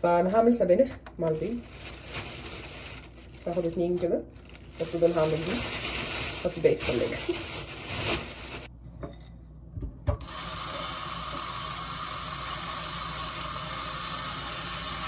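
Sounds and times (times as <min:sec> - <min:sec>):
plastic bag crinkling: 0:01.2 - 0:08.7
faucet running into bowl: 0:10.2 - 0:15.0.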